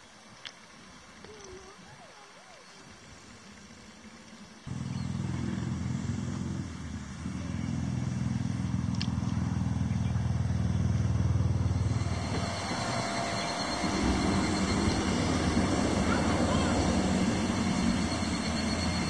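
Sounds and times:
motor engine running: 4.7s - 19.0s.

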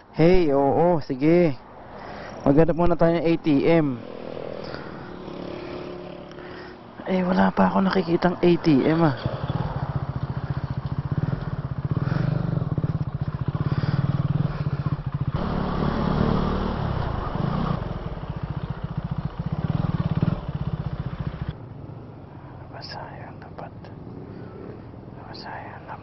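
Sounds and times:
motorcycle engine running: 3.9s - 6.8s, 7.6s - 22.0s.

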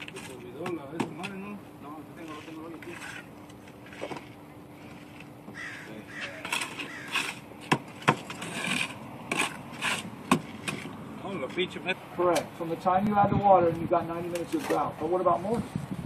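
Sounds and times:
trowel scraping mortar: 2.2s - 11.6s.

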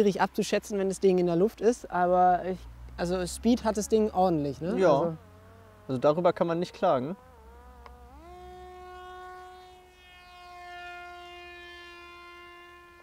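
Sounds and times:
drone propeller motor whining: 4.7s - 13.0s.

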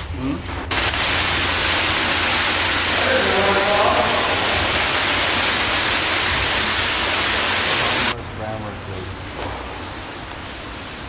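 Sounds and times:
water rushing in storm drain: 0.7s - 8.2s.

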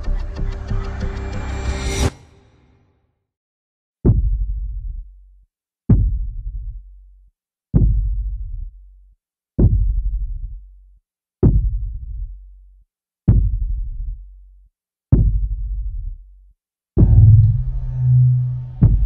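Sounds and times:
deep electronic bass hits: 17.0s - 19.0s.

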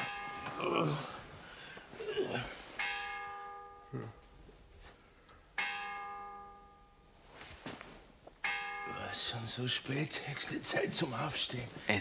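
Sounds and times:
bell striking the hour: 0.0s - 0.8s, 2.8s - 4.3s, 5.6s - 7.1s, 8.4s - 9.8s
man groaning: 0.6s - 1.2s, 2.0s - 2.6s, 3.9s - 4.2s.

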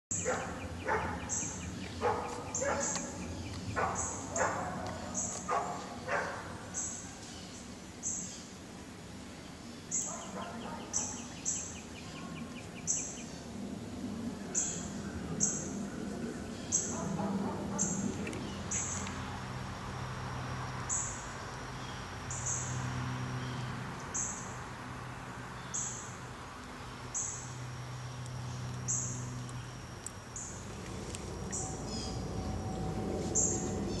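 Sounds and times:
birds calling: 0.1s - 8.5s, 9.9s - 13.4s, 27.1s - 34.0s
low steady hum: 0.1s - 34.0s.

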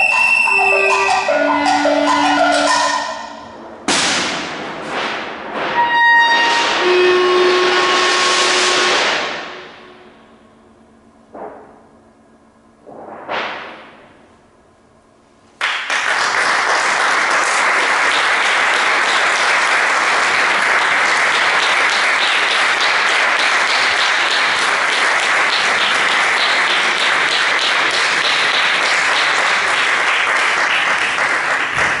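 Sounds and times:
audience applause: 15.6s - 32.0s.

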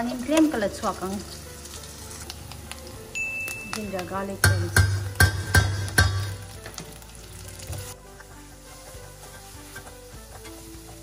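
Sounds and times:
onions sizzling in hot oil: 0.0s - 11.0s
metal spoon stirring in pot: 4.4s - 11.0s.

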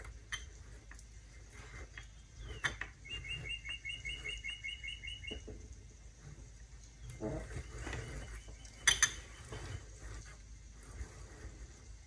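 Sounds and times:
bird chirping: 2.0s - 5.6s.

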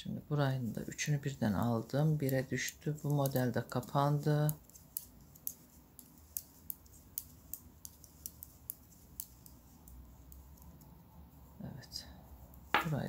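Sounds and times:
knitting needles clicking: 1.6s - 11.2s.

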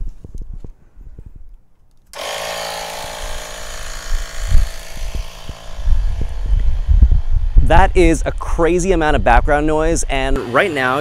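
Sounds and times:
electric air pump whining: 2.2s - 8.6s.

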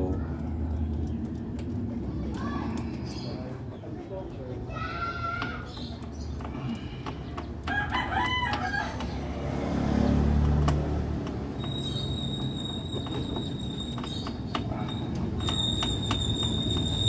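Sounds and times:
rooster crowing: 7.7s - 9.0s.

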